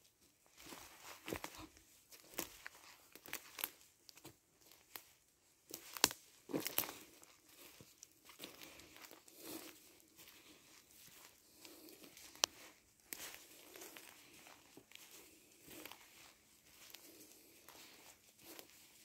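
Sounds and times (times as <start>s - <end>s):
footsteps crunching through dry leaves: 0.4s - 19.0s
twigs snapping: 5.7s - 7.0s.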